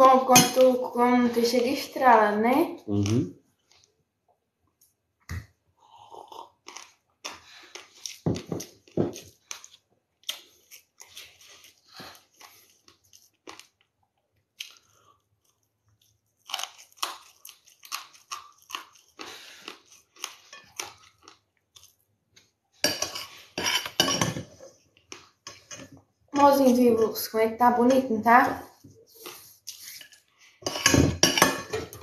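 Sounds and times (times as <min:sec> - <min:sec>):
chewing crunchy food: 0:06.0 - 0:22.6.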